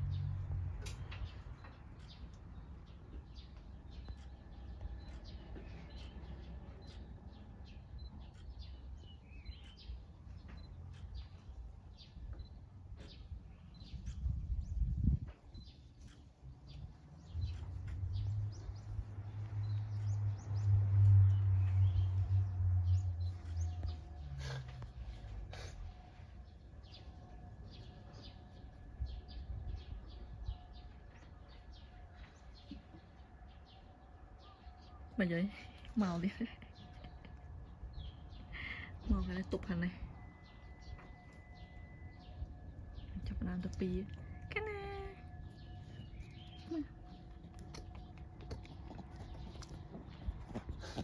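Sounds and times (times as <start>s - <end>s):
small birds chirping: 0.0s - 51.0s
steady low rumble: 0.0s - 51.0s
low rumble: 13.2s - 32.6s.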